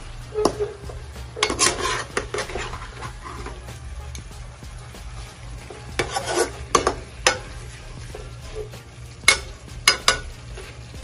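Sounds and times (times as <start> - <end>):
spatula scraping frying pan: 0.2 - 11.0
spatula clacking on pan: 6.0 - 7.6, 9.2 - 10.3.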